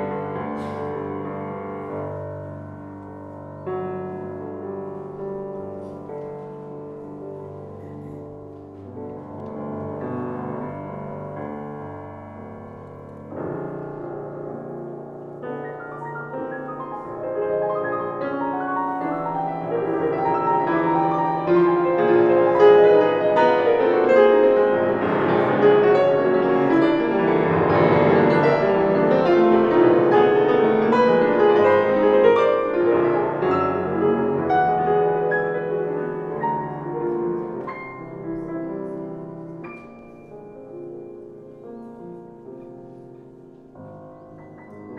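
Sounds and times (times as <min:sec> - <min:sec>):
grand piano classical piece: 0:00.0 - 0:44.9.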